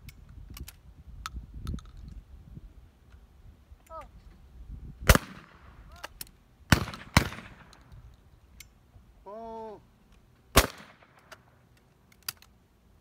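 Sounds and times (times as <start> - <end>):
shotgun shots: 5.0 - 5.6, 6.7 - 7.7, 10.5 - 11.3
person shouting: 9.2 - 9.8.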